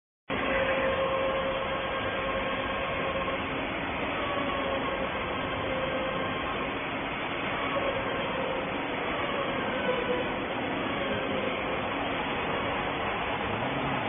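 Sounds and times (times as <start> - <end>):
faint machine whine: 0.3 - 13.4
welding machinery noise: 0.3 - 14.0.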